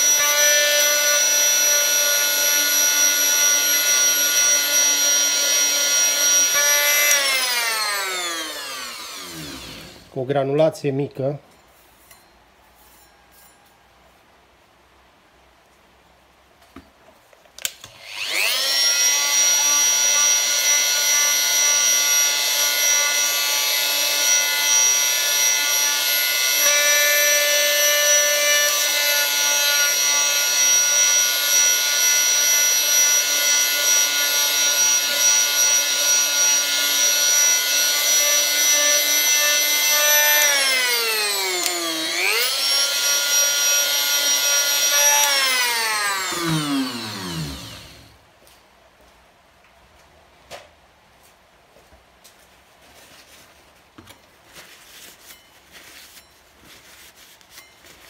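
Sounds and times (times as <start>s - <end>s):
oscillating multi-tool sanding: 18.0s - 48.1s.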